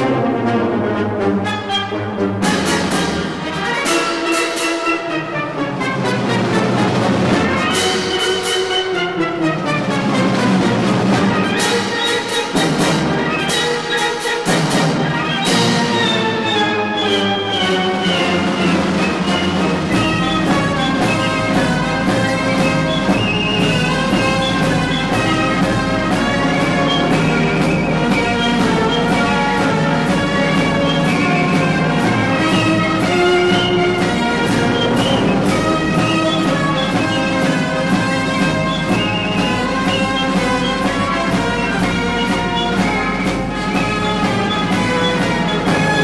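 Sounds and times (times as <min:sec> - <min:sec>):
orchestral music with brass: 0:00.0 - 0:46.0
steady beat of strikes: 0:10.0 - 0:16.5, 0:17.8 - 0:46.0.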